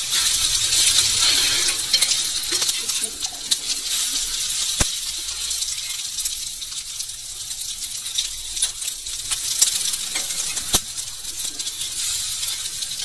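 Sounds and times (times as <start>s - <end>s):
kababs sizzling in oil: 0.0s - 13.0s
metal tongs clicking on pan: 0.1s - 13.0s.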